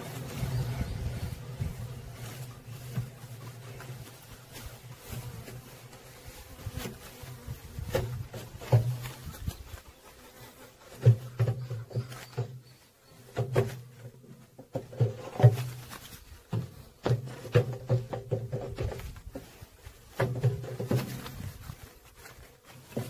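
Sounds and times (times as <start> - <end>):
wooden frames knocking and scraping: 0.0 - 9.7, 10.8 - 21.9
bees buzzing: 0.0 - 14.0.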